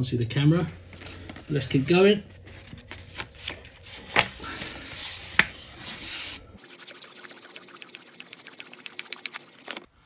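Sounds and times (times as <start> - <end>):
sandpaper rubbing on metal: 4.9 - 9.9.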